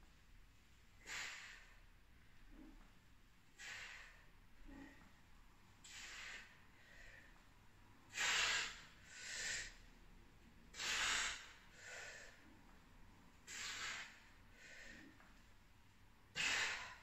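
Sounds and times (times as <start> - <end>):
woman breathing hard: 3.5 - 5.1, 5.8 - 7.5, 8.1 - 9.9, 10.7 - 12.5, 13.4 - 15.4, 16.3 - 17.0.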